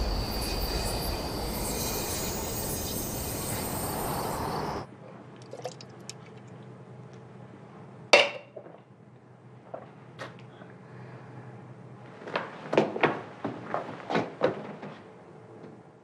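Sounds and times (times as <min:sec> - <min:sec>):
loud rushing noise: 0:00.0 - 0:04.9
drinking from a metal can: 0:05.4 - 0:06.6
can clinking on tile floor: 0:08.2 - 0:08.6.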